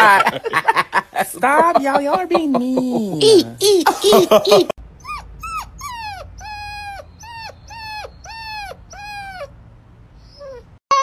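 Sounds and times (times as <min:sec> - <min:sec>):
puppy whimper-howling: 0:05.0 - 0:09.6, 0:10.2 - 0:11.0.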